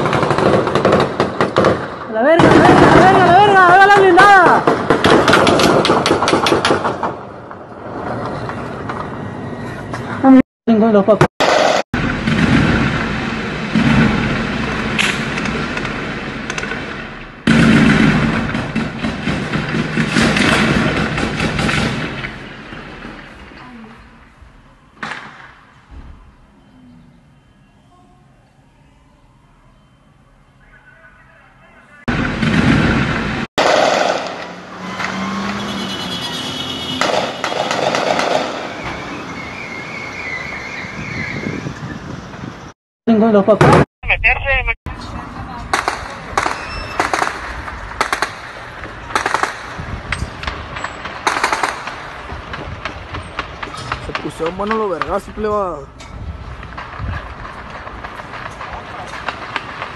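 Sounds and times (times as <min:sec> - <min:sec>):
gunfire crackling shots: 0:00.0 - 0:07.2, 0:11.4 - 0:23.2, 0:32.1 - 0:34.6, 0:37.0 - 0:38.8, 0:45.7 - 0:55.1, 0:56.5 - 0:59.9
vehicle traffic: 0:00.0 - 0:43.4, 0:44.9 - 0:59.9
faint high wavering tone: 0:26.5 - 0:30.6.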